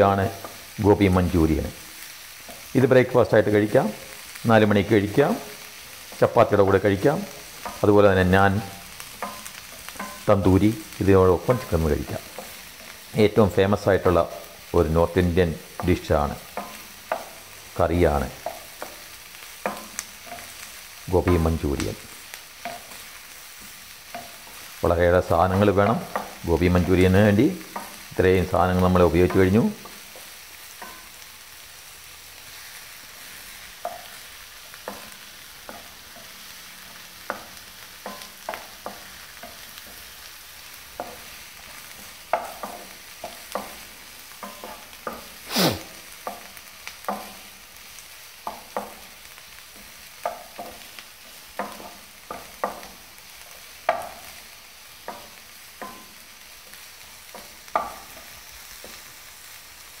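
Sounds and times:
vegetables sizzling in oil: 0.0 - 60.0
utensil scraping a pan: 44.4 - 46.4.

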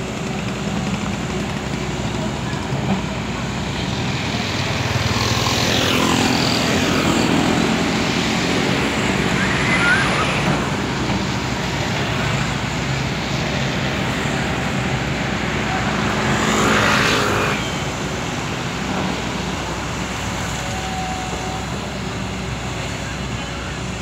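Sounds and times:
motorbikes passing: 0.0 - 20.4
excavator diesel engine running: 0.0 - 24.0
road traffic passing: 0.0 - 24.0.

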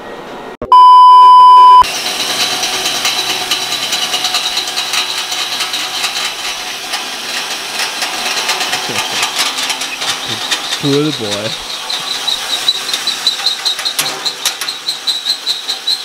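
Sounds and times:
test-tone beep: 0.6 - 1.8
drill boring through steel: 1.8 - 16.0.

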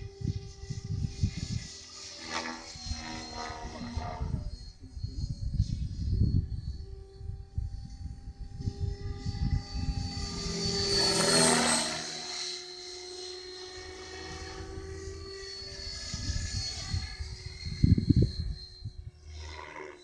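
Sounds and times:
helicopter motor whine: 0.0 - 20.0
rotor blade noise: 0.0 - 20.0.

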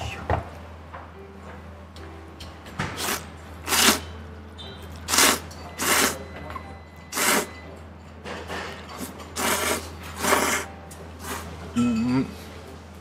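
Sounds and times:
person slurping noodles: 3.0 - 4.0, 5.1 - 6.2, 7.1 - 7.5, 9.4 - 11.6.

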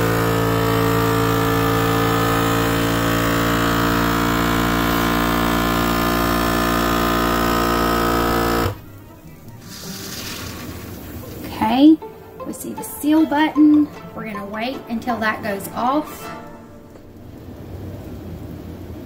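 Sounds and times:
vacuum sealer pump humming: 0.0 - 11.5.

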